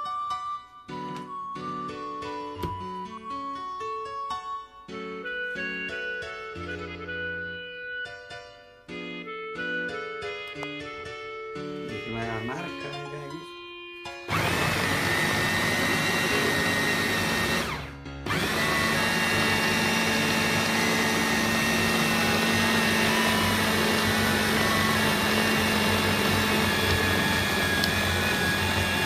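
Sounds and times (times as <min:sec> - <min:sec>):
food chopper motor whining: 0:14.3 - 0:29.0.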